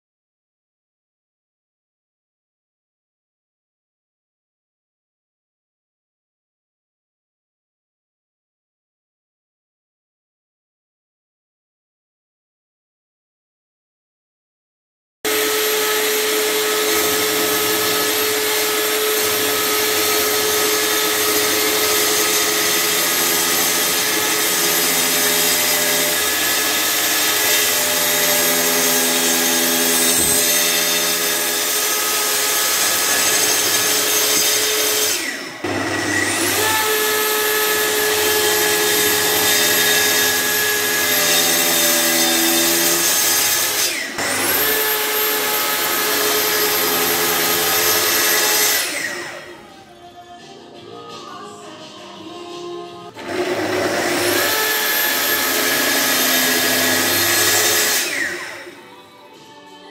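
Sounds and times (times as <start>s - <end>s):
track saw cutting wood: 15.3s - 49.7s, 53.1s - 59.0s.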